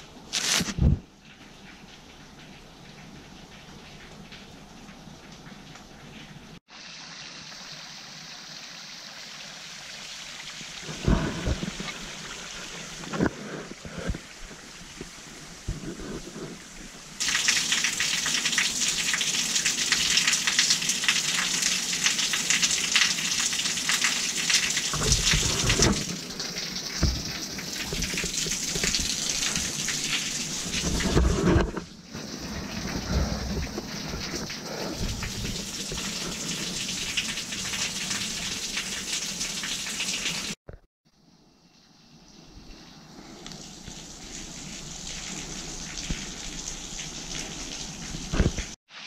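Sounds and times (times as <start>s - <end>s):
water splashing: 6.6s - 40.8s.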